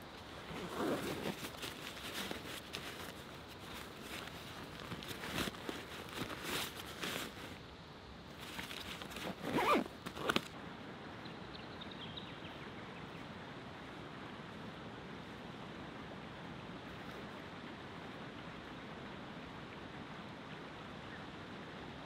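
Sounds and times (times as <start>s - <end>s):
rustling: 0.0s - 7.6s, 8.3s - 10.6s
steady hiss: 0.0s - 11.2s
zipper pulled: 0.2s - 7.6s, 8.4s - 10.6s.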